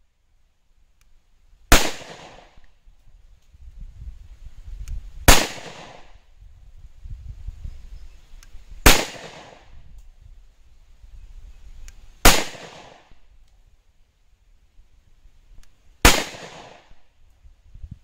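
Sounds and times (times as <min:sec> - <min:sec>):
pistol shots with echo: 0:01.7 - 0:02.6, 0:05.3 - 0:06.1, 0:08.8 - 0:09.7, 0:12.2 - 0:13.2, 0:16.0 - 0:17.0.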